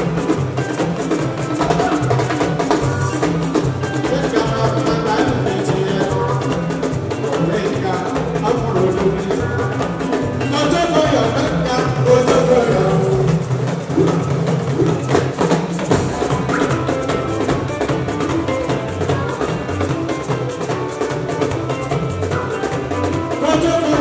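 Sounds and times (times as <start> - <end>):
band music with drums: 0.0 - 24.0
person singing: 4.0 - 14.4, 22.4 - 24.0.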